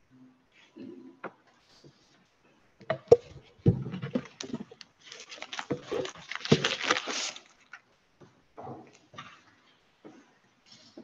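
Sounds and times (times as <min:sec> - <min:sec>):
knocks and thumps: 0:02.8 - 0:04.8
paper rustling: 0:04.2 - 0:07.9.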